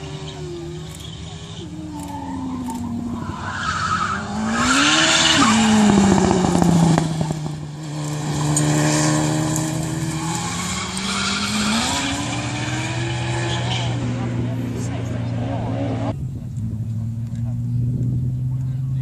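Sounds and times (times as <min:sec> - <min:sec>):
tyres squealing and skidding: 0:00.0 - 0:07.5, 0:08.1 - 0:14.3
car engine revving: 0:00.0 - 0:19.0.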